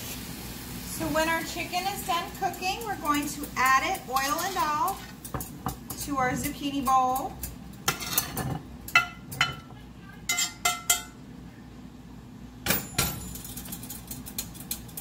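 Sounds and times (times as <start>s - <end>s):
metal spatula scraping skillet: 2.6s - 5.5s.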